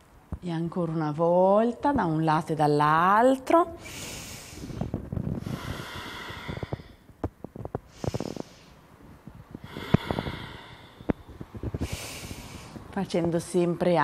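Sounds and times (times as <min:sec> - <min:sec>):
woman breathing deeply: 0:03.8 - 0:07.1, 0:07.8 - 0:08.9, 0:09.5 - 0:12.9.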